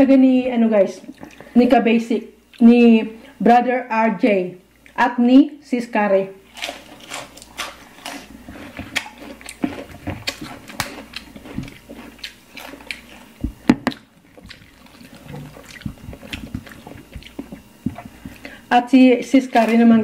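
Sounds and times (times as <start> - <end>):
wet chewing and crunching: 6.4 - 18.6.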